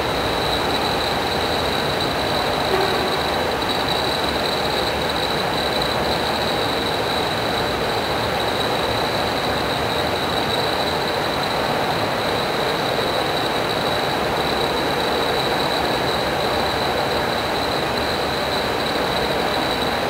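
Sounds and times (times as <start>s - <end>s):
high-pitched whine: 0.0s - 20.0s
machinery rushing hum: 0.0s - 20.0s.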